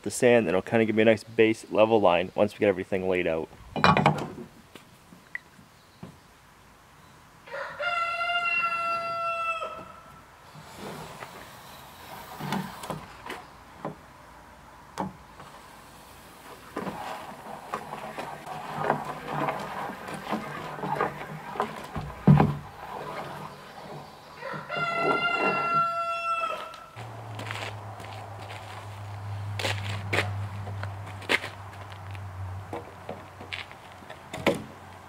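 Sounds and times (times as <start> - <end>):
rooster crowing: 7.5 - 10.1, 24.3 - 27.0.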